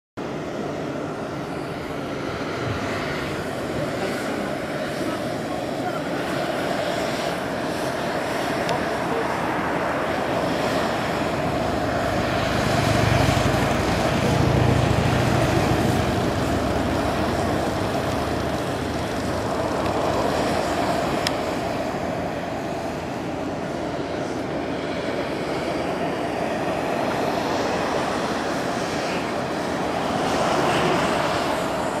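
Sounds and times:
hot spring bubbling and rushing: 0.2 - 32.0.

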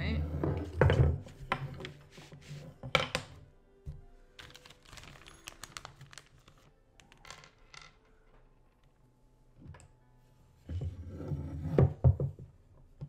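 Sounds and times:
plastic bag crinkling: 4.4 - 6.7.

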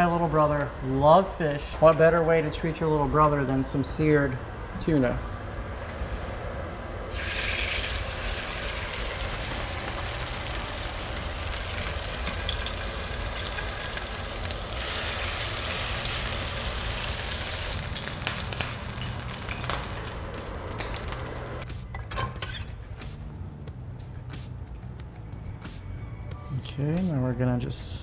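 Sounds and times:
fish sizzling in a frying pan: 7.1 - 20.4.

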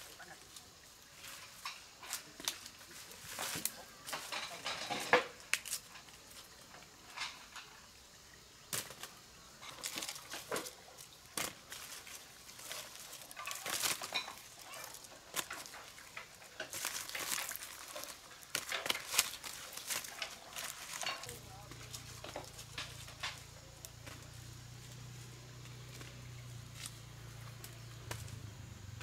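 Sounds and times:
chickens rustling and scratching: 0.0 - 7.8, 8.7 - 28.2.

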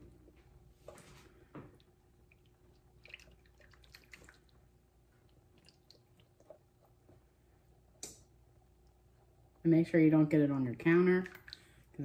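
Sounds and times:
syrup dripping and squishing: 1.7 - 9.6, 11.2 - 12.0.

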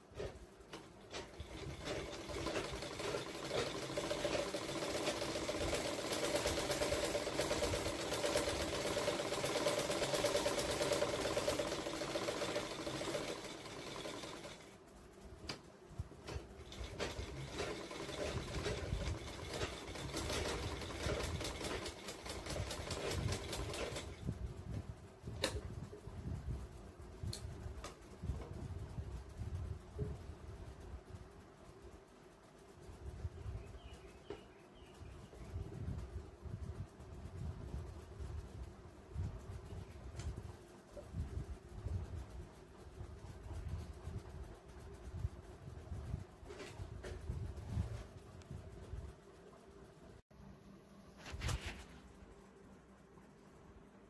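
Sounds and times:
sewing machine running: 1.1 - 14.8, 16.2 - 24.2.

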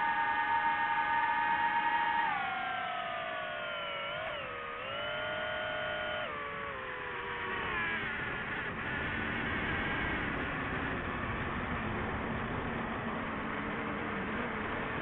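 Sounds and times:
drone motor whining: 0.0 - 11.8.

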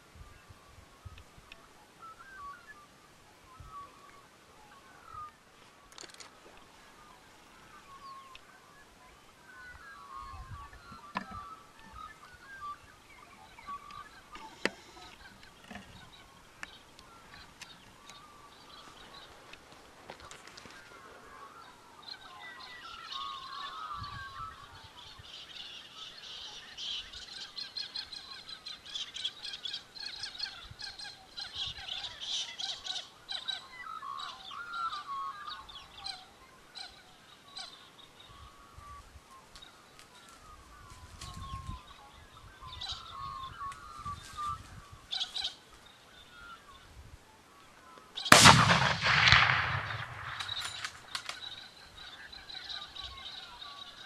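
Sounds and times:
birds chirping: 0.2 - 54.0
rifle shot: 48.3 - 51.1.

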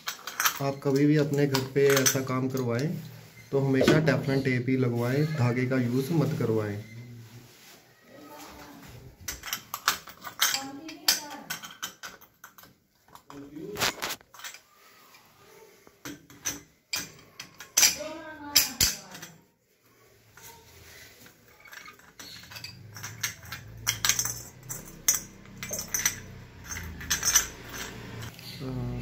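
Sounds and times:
wrench clinking on metal: 0.0 - 3.0, 9.3 - 13.5, 16.0 - 19.4, 21.2 - 28.4.

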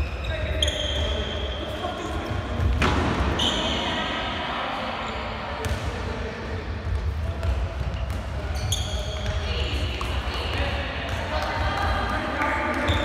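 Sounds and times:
shoe squeak: 0.0 - 2.6, 3.3 - 3.9, 8.0 - 9.4, 12.8 - 13.0
ball bouncing on wooden court: 2.2 - 3.5, 5.6 - 5.9, 6.8 - 13.0.

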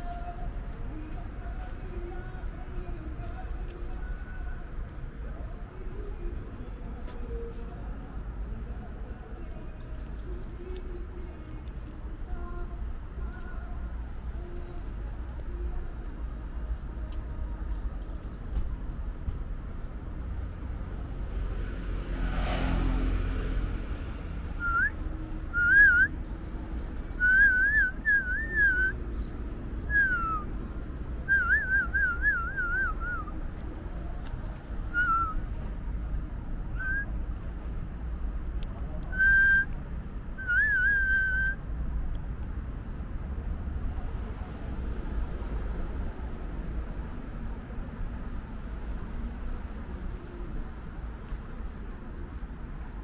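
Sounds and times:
person whistling: 24.6 - 26.2, 27.2 - 29.0, 29.9 - 30.5, 31.2 - 33.4, 34.9 - 35.4, 36.8 - 37.1, 39.1 - 39.7, 40.4 - 41.6.

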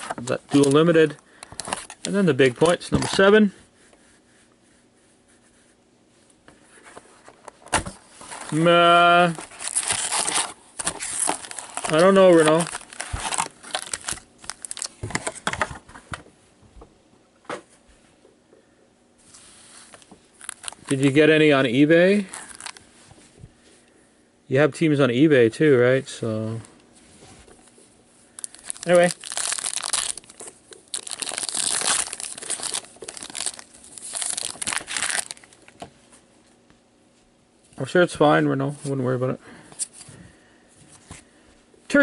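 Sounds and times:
card pack wrappers crinkling: 0.0 - 3.4, 8.2 - 15.7, 19.9 - 22.8, 28.3 - 35.8.

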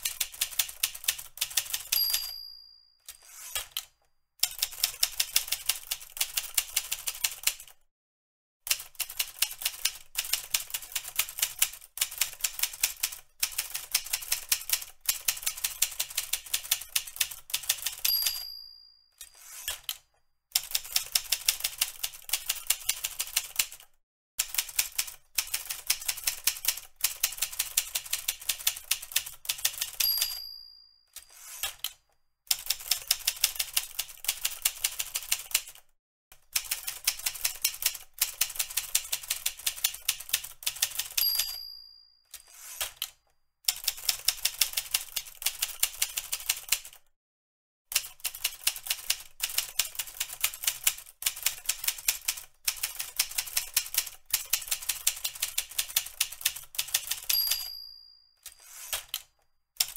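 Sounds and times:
typewriter keys clacking: 0.0 - 2.3, 3.1 - 7.7, 8.7 - 18.4, 20.6 - 23.8, 24.4 - 30.4, 31.2 - 35.8, 36.6 - 41.6, 42.4 - 47.0, 47.9 - 57.7, 58.4 - 59.9
typewriter bell dinging: 1.6 - 3.8, 17.6 - 19.8, 29.6 - 31.9, 41.0 - 42.8, 57.0 - 59.2.

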